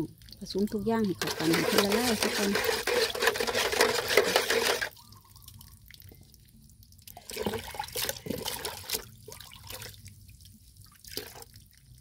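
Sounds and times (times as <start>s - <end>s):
water splashing and dripping: 0.0s - 12.0s
motorised whisk whirring: 1.2s - 4.9s.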